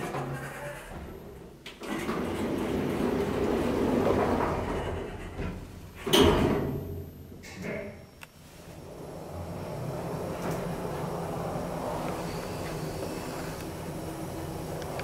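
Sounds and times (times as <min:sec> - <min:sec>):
elevator doors sliding: 0:01.0 - 0:07.8, 0:08.6 - 0:15.0
elevator doors thudding shut: 0:06.0 - 0:07.0.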